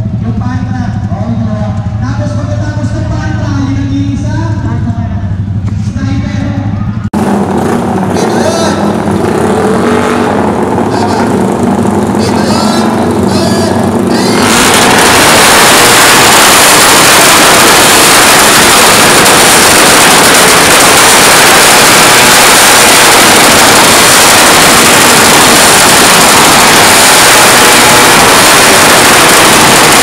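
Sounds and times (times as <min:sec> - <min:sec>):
motorcycle engine revving hard: 0:07.0 - 0:30.0.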